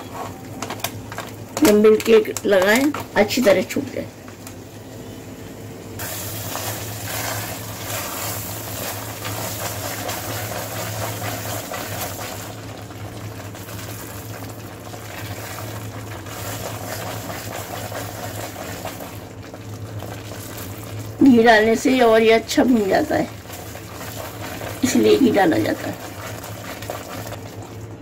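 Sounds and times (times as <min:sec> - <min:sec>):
steady low hum: 0:00.0 - 0:28.0
milk mixture bubbling and sizzling: 0:05.9 - 0:28.0
spatula stirring: 0:06.0 - 0:21.0, 0:22.8 - 0:27.8.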